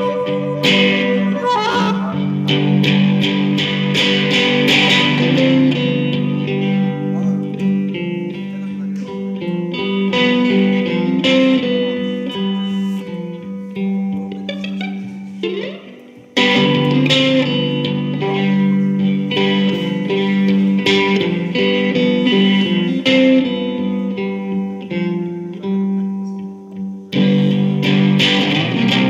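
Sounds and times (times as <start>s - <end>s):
harmonica: 0.0s - 2.7s
electric blues guitar: 0.0s - 29.0s.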